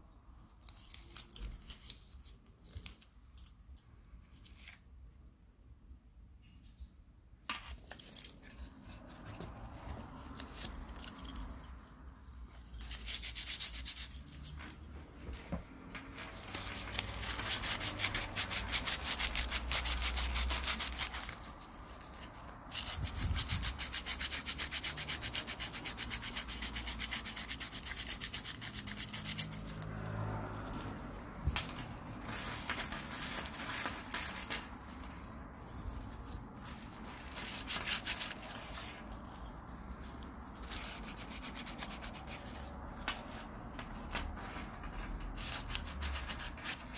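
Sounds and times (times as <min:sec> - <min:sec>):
sandpaper scratching metal: 0:16.3 - 0:21.7, 0:22.7 - 0:29.8, 0:40.6 - 0:42.8.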